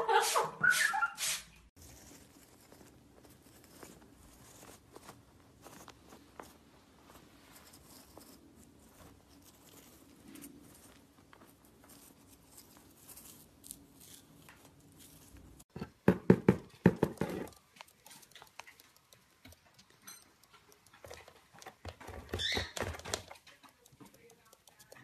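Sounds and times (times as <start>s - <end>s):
brief squeak: 0.6s - 1.4s
hollow knocks on cardboard box: 15.8s - 17.5s.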